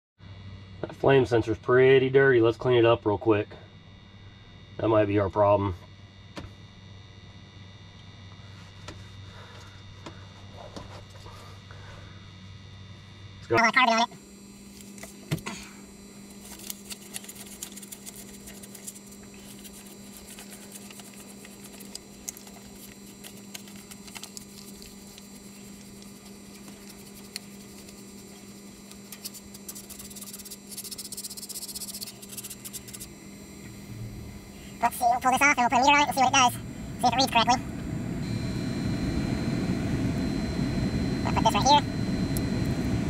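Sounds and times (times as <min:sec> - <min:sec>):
steady low hum: 0:00.2 - 0:43.0
paper bill rubbing on metal rod: 0:16.4 - 0:33.1
scratchy rubbing: 0:16.4 - 0:33.2.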